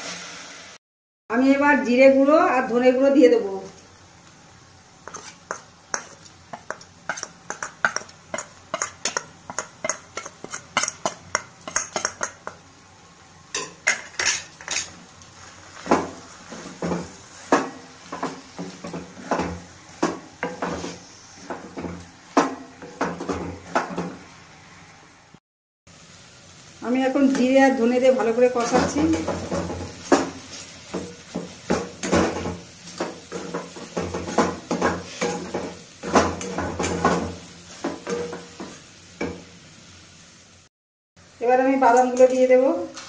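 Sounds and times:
metal spatula scraping metal pan: 0:05.0 - 0:12.4, 0:33.3 - 0:37.3.

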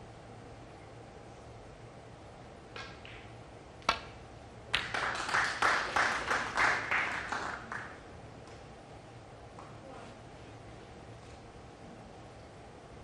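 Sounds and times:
applause: 0:04.7 - 0:08.0.

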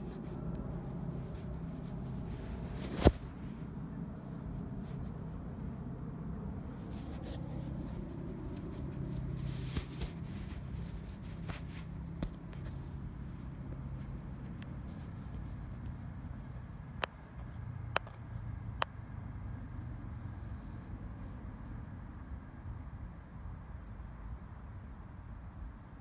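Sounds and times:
low background rumble: 0:00.0 - 0:22.2
camera handling ticks and rustling: 0:06.8 - 0:16.0.

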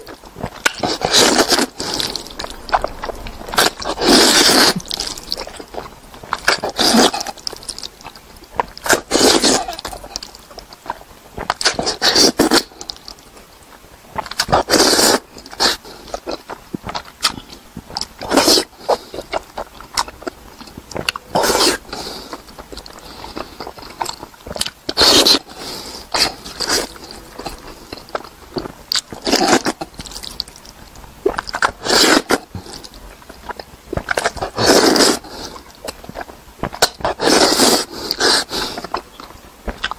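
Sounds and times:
man slurping noodles: 0:00.8 - 0:07.8, 0:34.4 - 0:35.6, 0:37.1 - 0:38.8.

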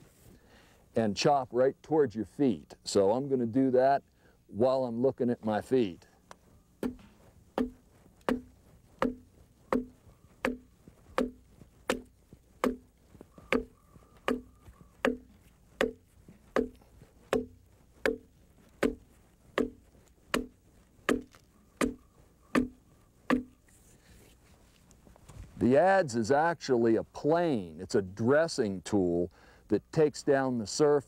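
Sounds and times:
adze chopping wood: 0:06.8 - 0:23.6.

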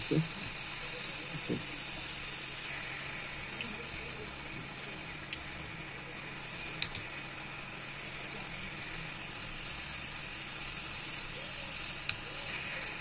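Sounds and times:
hot air blower hissing: 0:00.0 - 0:13.0.

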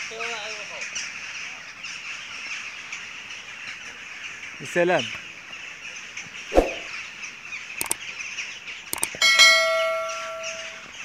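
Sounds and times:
sharp clicks: 0:06.6 - 0:06.9, 0:09.0 - 0:09.2.

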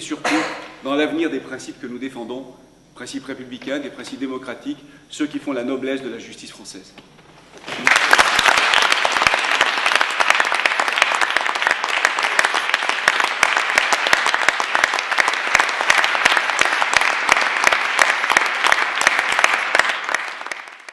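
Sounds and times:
audience applause: 0:07.6 - 0:20.9.

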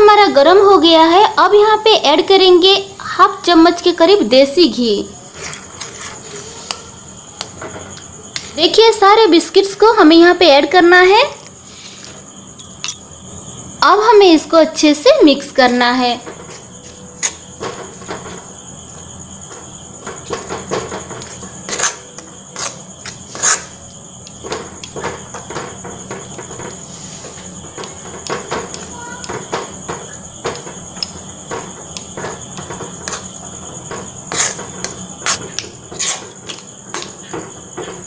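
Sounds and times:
spoon scraping a pan: 0:05.3 - 0:06.9, 0:21.1 - 0:23.8, 0:26.3 - 0:36.5.

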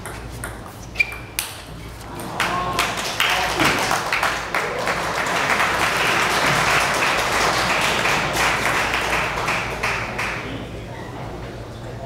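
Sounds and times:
large crowd applauding: 0:02.3 - 0:10.6.

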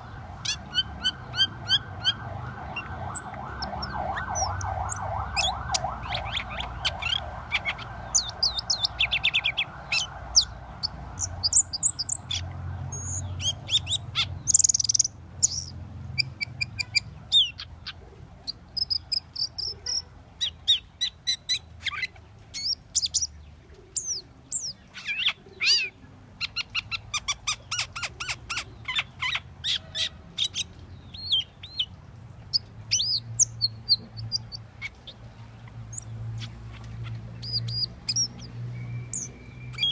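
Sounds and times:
starling singing: 0:00.0 - 0:23.4, 0:35.9 - 0:39.9.

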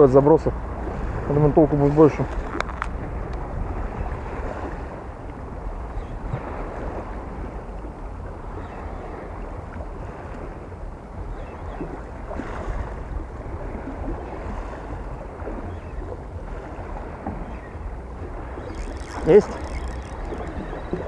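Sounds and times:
small waves washing: 0:00.0 - 0:21.0
wind rumbling on microphone: 0:00.0 - 0:21.0.

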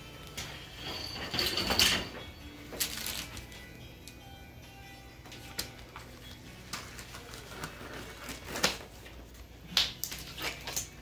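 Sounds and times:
paper pack rustling and crinkling: 0:02.8 - 0:03.5, 0:05.6 - 0:09.2
sharp paper crackles: 0:02.8 - 0:03.5, 0:06.6 - 0:09.1.

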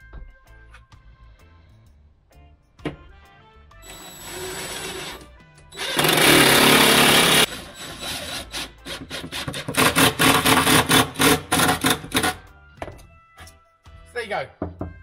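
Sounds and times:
background music: 0:00.0 - 0:15.0
cordless driver driving screws: 0:05.8 - 0:12.3.

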